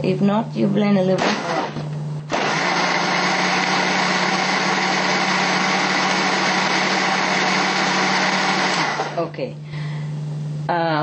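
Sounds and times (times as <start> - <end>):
electric blender running: 1.1 - 9.3.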